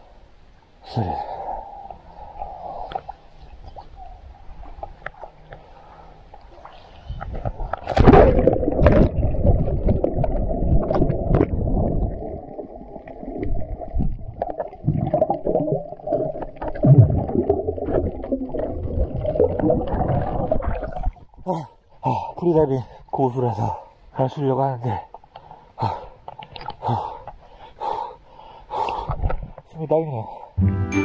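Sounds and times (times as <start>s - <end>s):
muffled underwater rushing: 6.7s - 21.3s
splash into water: 7.8s - 9.2s.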